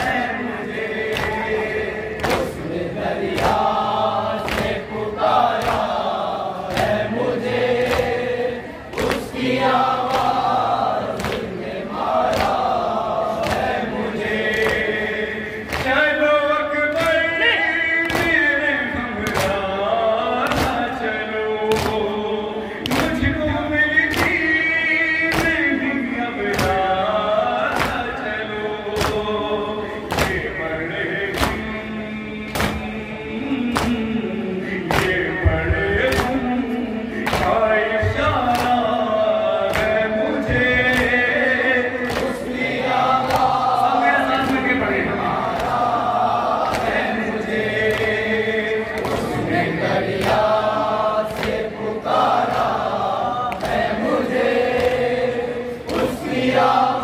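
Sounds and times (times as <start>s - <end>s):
man singing into a microphone: 0.0s - 11.2s, 12.1s - 57.0s
men chanting a lament: 0.0s - 57.0s
rhythmic chest-beating thuds: 0.0s - 57.0s
chest-beating slaps: 2.2s - 2.6s, 4.4s - 6.1s, 11.1s - 11.5s, 12.2s - 15.0s, 25.3s - 25.7s, 27.7s - 28.1s, 28.9s - 29.3s, 30.0s - 30.5s, 31.2s - 31.8s, 32.5s - 33.0s, 34.8s - 36.5s, 37.2s - 38.9s, 39.6s - 41.3s, 42.0s - 42.5s, 51.2s - 51.7s.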